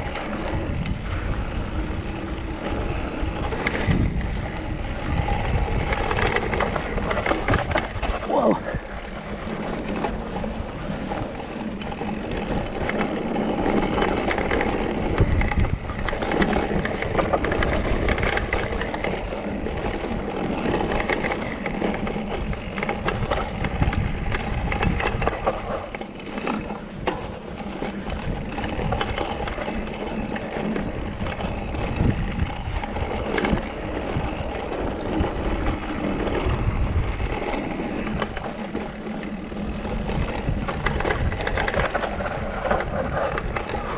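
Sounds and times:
bike knocking and rattling: 0.0 - 43.9
bike tyres crunching on dirt: 0.0 - 43.9.

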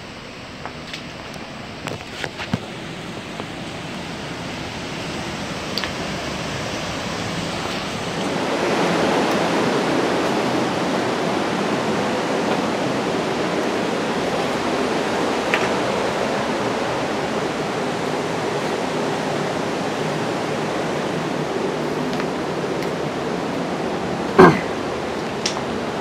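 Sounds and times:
flowing water rushing: 0.8 - 26.0.

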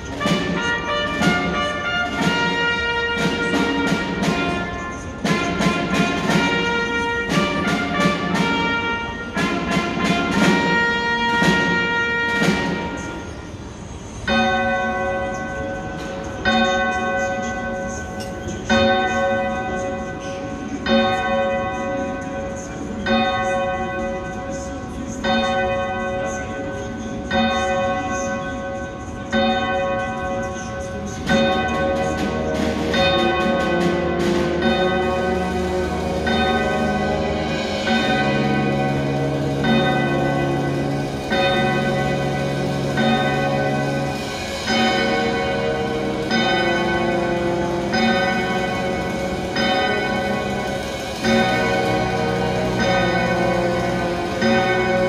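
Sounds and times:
brass band music: 0.0 - 20.0, 30.9 - 55.0
sharp percussion hits: 0.0 - 24.6, 25.2 - 55.0
bell tolling slowly: 0.0 - 55.0.

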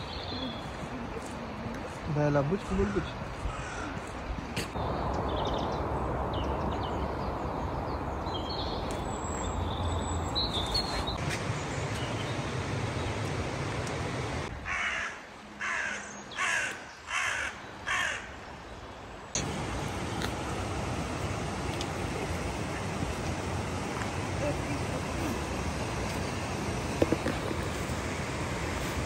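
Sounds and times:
crow cawing: 2.8 - 4.1, 14.6 - 18.4
river water rushing: 19.4 - 29.0.

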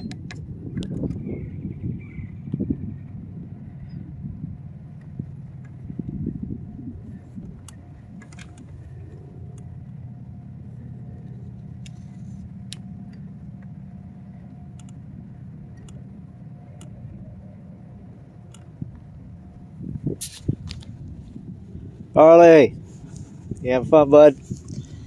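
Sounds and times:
low mechanical hum: 0.0 - 25.0
thin steady whine: 0.0 - 25.0
light clicks: 14.7 - 15.0, 18.4 - 18.7.

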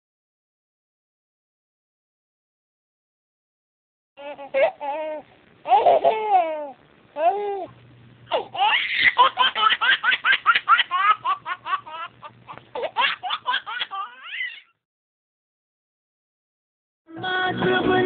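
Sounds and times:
baby giggling: 4.2 - 7.7, 8.3 - 14.7.

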